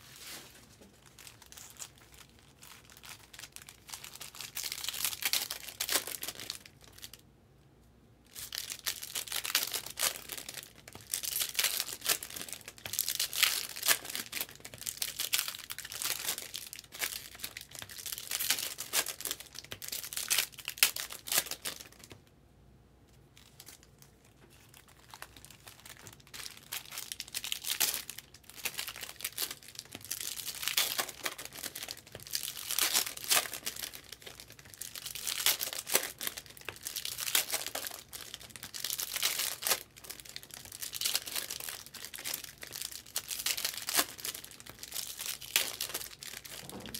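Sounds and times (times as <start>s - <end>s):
foil wrappers tearing and crinkling: 8.4s - 22.0s, 24.6s - 46.9s.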